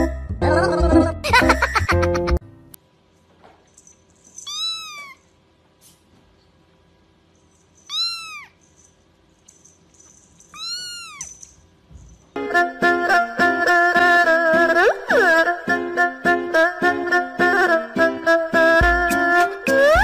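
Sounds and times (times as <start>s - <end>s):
music: 0.0s - 2.8s, 12.4s - 20.0s
kitten mewing: 4.5s - 5.2s, 7.9s - 8.6s, 10.5s - 11.3s.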